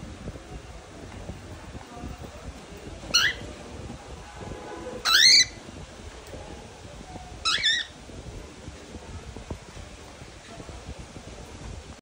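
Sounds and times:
cockatiel chirps: 7.4s - 7.9s.

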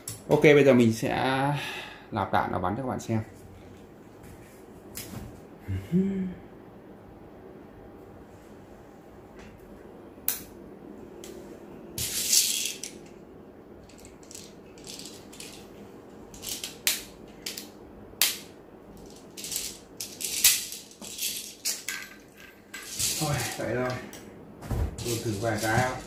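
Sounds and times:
plastic pellets rattling and clicking: 13.8s - 15.6s, 19.0s - 23.6s.

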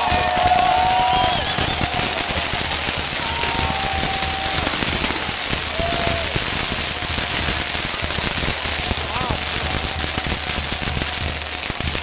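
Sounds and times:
firecrackers crackling: 0.0s - 12.0s
short whistling tones: 0.8s - 2.0s.

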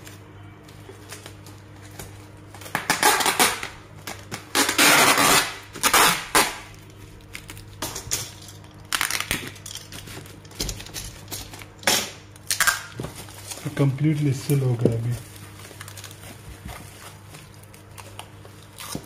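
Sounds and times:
bubble wrap crinkling: 0.0s - 7.8s, 12.5s - 19.0s
packing tape pulled off roll: 2.5s - 7.8s.

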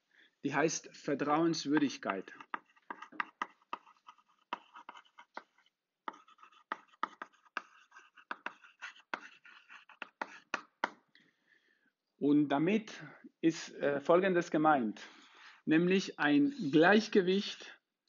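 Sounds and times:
chalk scratching on blackboard: 1.7s - 11.0s.

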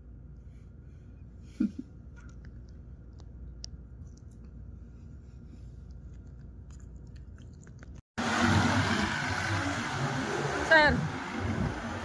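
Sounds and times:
low steady rumble: 0.0s - 8.9s.

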